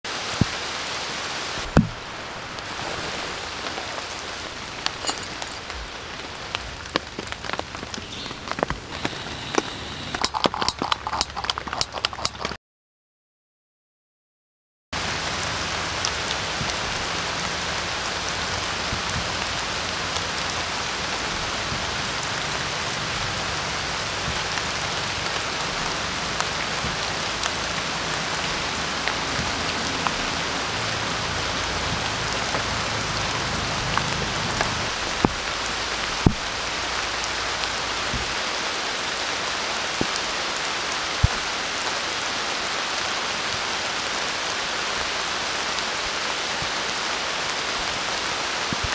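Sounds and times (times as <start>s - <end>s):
steady rain hiss: 0.1s - 10.6s, 15.0s - 48.9s
raindrop clicks: 3.4s - 12.6s, 15.9s - 38.6s.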